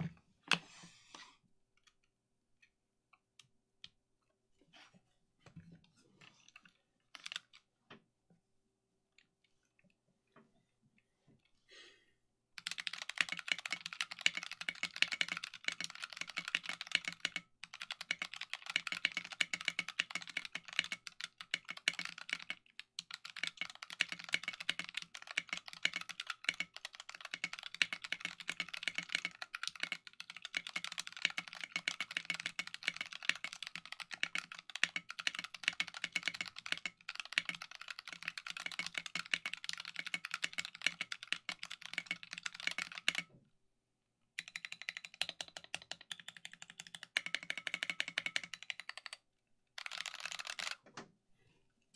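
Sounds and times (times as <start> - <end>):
mechanical keyboard typing: 6.6 - 7.6, 12.6 - 43.3, 44.4 - 50.8.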